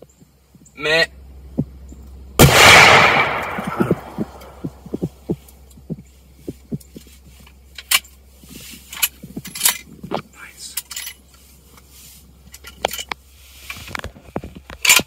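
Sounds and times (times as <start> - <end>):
rifle shot: 2.4 - 4.7.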